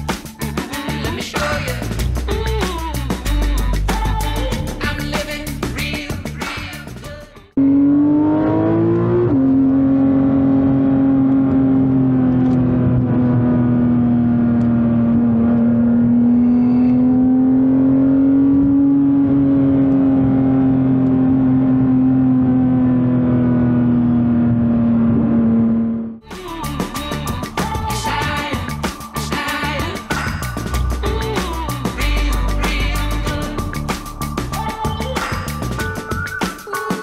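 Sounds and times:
car engine revving in cabin: 7.6s - 26.2s.

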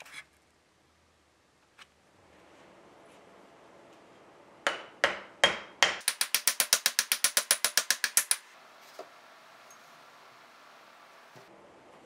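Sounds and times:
hammer striking metal vise: 4.7s - 8.4s.

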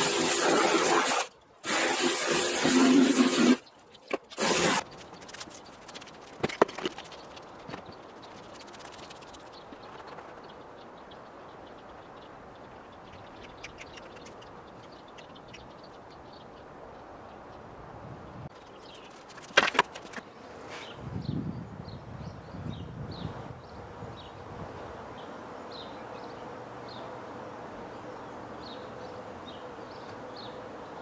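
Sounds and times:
pressure washer spray on wheel: 0.0s - 3.7s, 4.3s - 5.6s.

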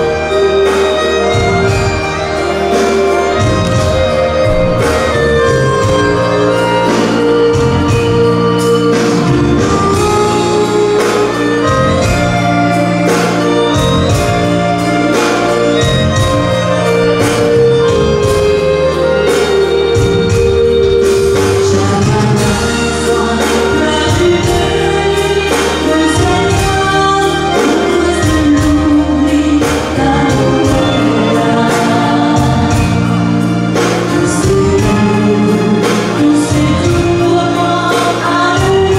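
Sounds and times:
live dance band playing: 0.0s - 38.9s
violin: 0.0s - 38.9s
women singing: 21.4s - 38.9s.

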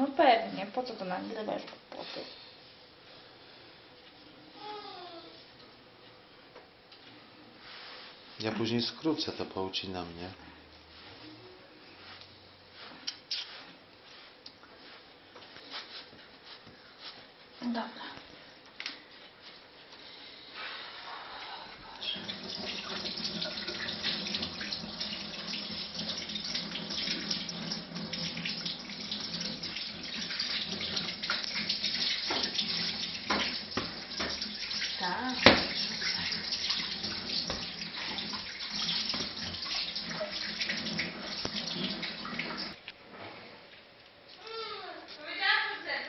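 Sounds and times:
tap water running into sink: 22.0s - 42.8s.

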